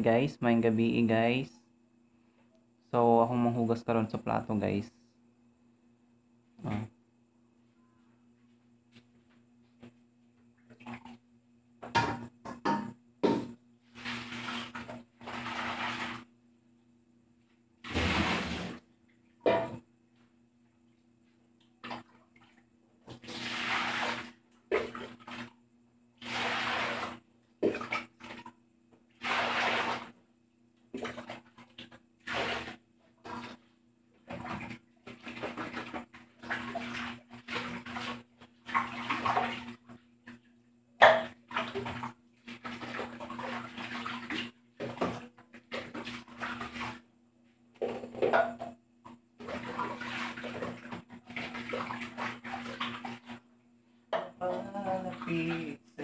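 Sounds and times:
faint low hum: 0.0 - 14.1
dishes knocking together: 11.8 - 13.6, 19.5 - 19.8
water splashing in a basin: 13.4 - 16.4, 17.8 - 19.8, 21.6 - 25.6, 26.2 - 30.2, 30.9 - 47.1, 47.8 - 53.5, 54.2 - 55.9
dish clattering: 19.5 - 19.8.

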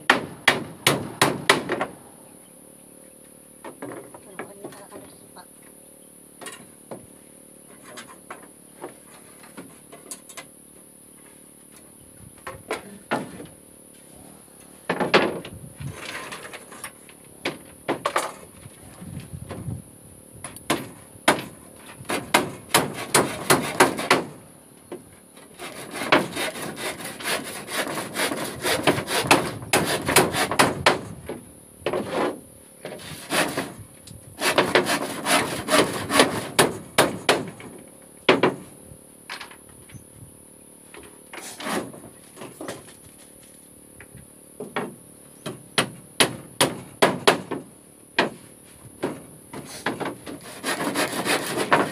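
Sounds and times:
handsaw cutting wood: 22.0 - 24.4, 25.5 - 31.1, 32.9 - 33.8, 34.4 - 37.4, 41.4 - 42.0, 49.6 - 51.9.

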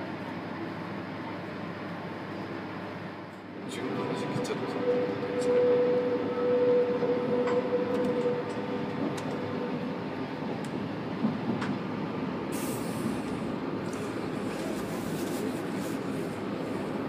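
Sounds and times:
steady whine: 1.9 - 17.0
train clicking over rail joints: 10.5 - 12.0.

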